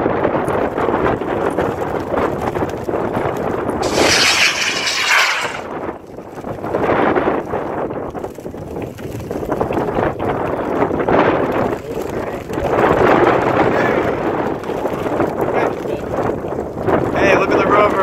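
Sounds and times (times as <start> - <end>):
wind buffeting microphone: 0.0 - 18.0
rocket motor rushing: 3.8 - 5.7.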